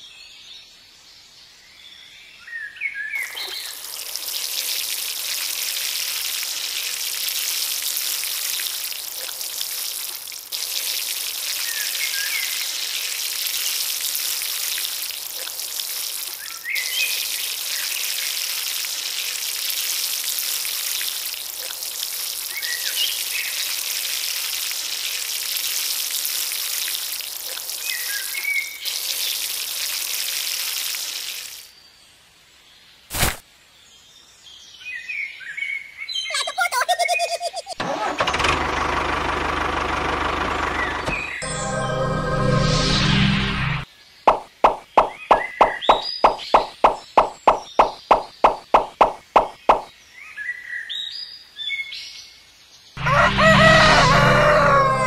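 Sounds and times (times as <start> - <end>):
water pouring onto sand: 3.2 - 31.7.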